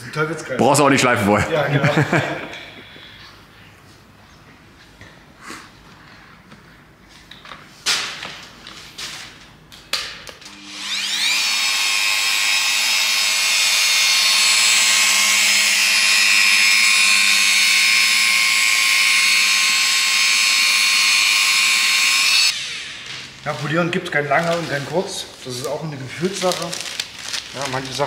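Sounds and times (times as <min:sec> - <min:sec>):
rotary polisher motor whine: 0:10.5 - 0:23.4.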